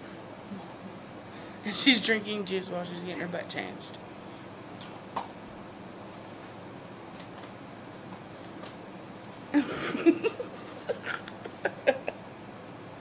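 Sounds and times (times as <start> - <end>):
woman chuckling breathily: 9.6 - 12.2.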